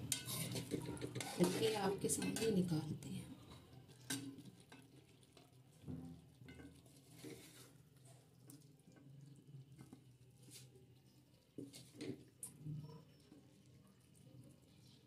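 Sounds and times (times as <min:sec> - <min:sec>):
steel spoon scraping metal pan: 0:00.0 - 0:02.8.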